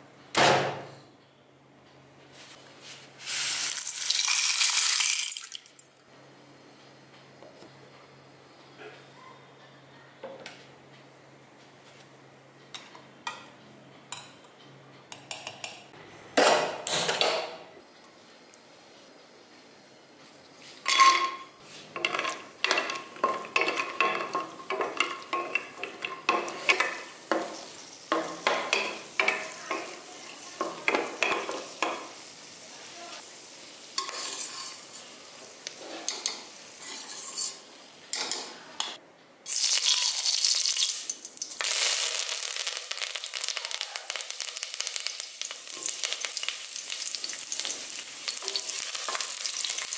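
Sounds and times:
oil sizzling: 0:03.1 - 0:05.8, 0:20.6 - 0:38.2, 0:39.5 - 0:49.9
nuts clinking and scraping in a pan: 0:20.9 - 0:32.2, 0:34.0 - 0:35.1, 0:39.5 - 0:49.9.

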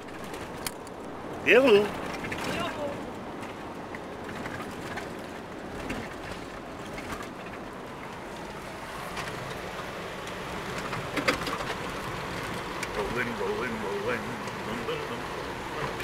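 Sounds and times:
small clicks and rattles: 0:00.0 - 0:01.2, 0:02.0 - 0:13.3
car road noise on gravel: 0:00.0 - 0:16.0.

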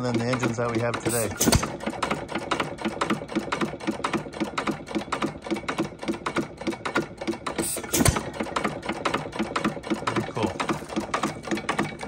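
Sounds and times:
engine coasting on flywheels: 0:00.0 - 0:12.0.

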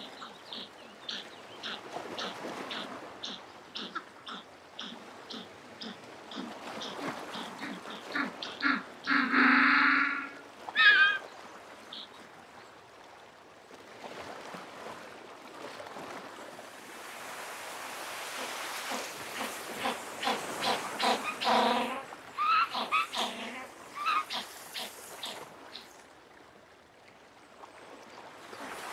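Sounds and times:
penguin braying call: 0:01.1 - 0:11.2, 0:18.9 - 0:25.4.

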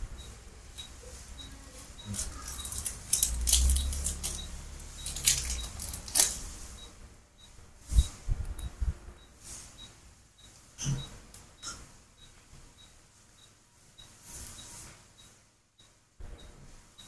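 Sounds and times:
rustling and scraping handling noise: 0:01.0 - 0:06.8, 0:14.2 - 0:15.1.

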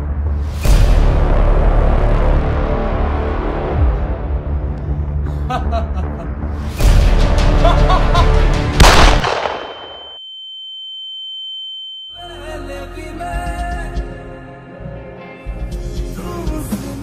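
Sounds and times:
dramatic film music: 0:00.0 - 0:09.3
sharp loud hit: 0:08.8 - 0:09.9.

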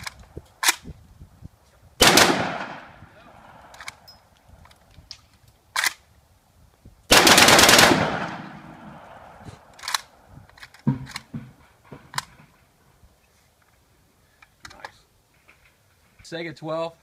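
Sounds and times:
suppressed shotgun burst: 0:02.0 - 0:03.0, 0:07.1 - 0:10.2.

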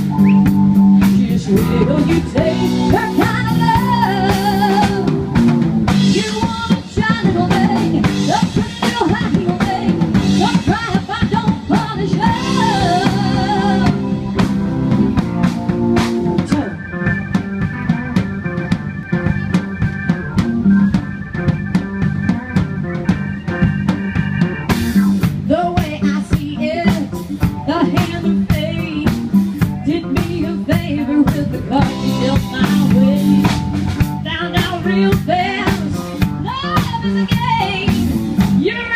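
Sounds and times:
drum kit: 0:00.0 - 0:38.9
electric guitar: 0:00.0 - 0:38.9
keyboard: 0:00.0 - 0:38.9
woman singing: 0:01.0 - 0:05.2, 0:06.0 - 0:14.2, 0:25.4 - 0:38.9.

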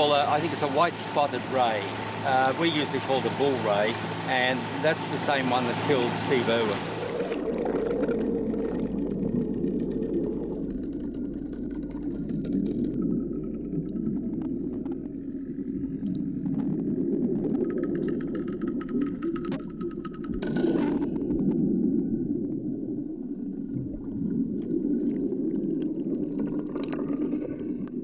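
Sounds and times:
steady low hum: 0:00.0 - 0:19.7
muffled underwater water noise: 0:00.0 - 0:28.0.

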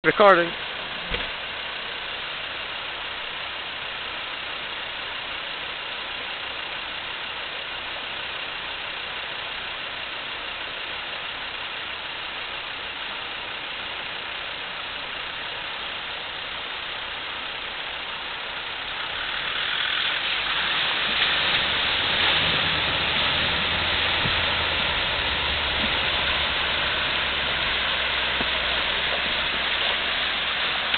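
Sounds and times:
river water rushing: 0:16.0 - 0:30.9.

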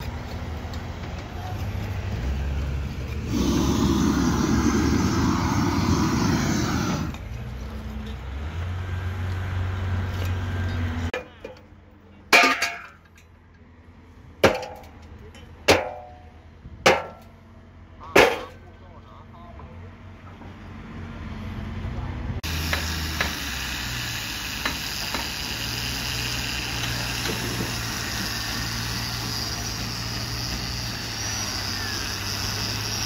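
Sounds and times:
construction site noise: 0:00.0 - 0:33.0
loud hiss: 0:03.2 - 0:07.2, 0:22.4 - 0:33.0.

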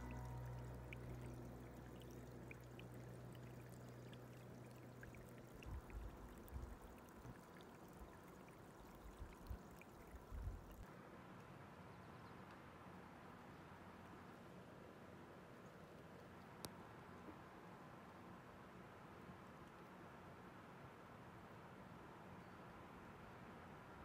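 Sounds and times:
faint trickling water: 0:00.0 - 0:24.0
light ticks: 0:15.9 - 0:17.4.

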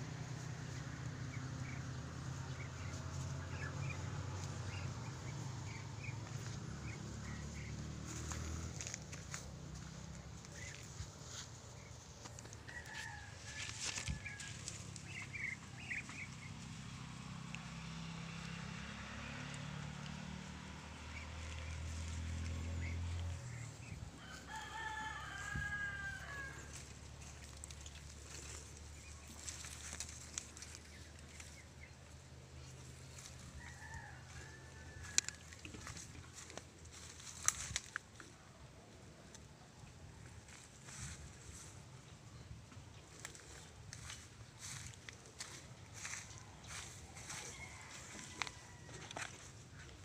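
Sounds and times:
low steady engine hum: 0:00.0 - 0:50.0
birds chirping: 0:01.2 - 0:13.3, 0:14.1 - 0:16.8, 0:20.6 - 0:25.4
rooster crowing: 0:12.6 - 0:14.9, 0:24.2 - 0:26.9, 0:33.4 - 0:35.9, 0:44.7 - 0:49.5.

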